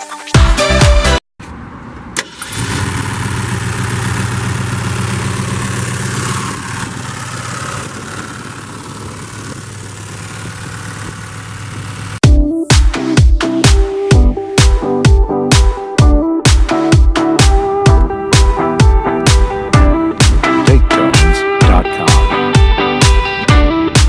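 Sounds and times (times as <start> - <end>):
background music: 0.0 - 1.2, 12.2 - 24.0
car engine idling: 2.2 - 12.2.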